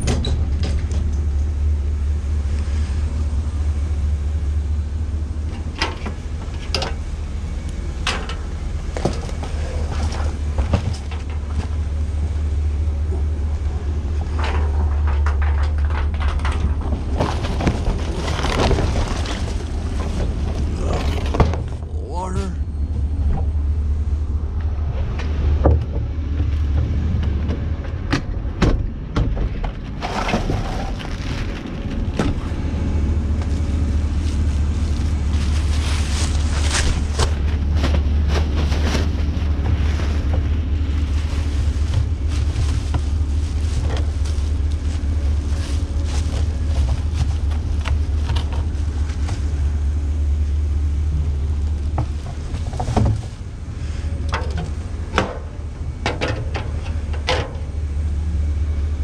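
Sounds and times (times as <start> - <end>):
truck engine rumbling: 0.0 - 59.0
plastic trash bag rustling: 16.6 - 21.8, 30.0 - 54.0.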